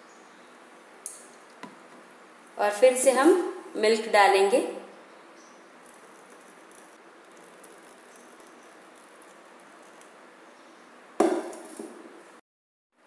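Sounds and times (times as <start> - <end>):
milk pouring into glass cup: 5.8 - 10.2
loud knock: 11.2 - 11.6.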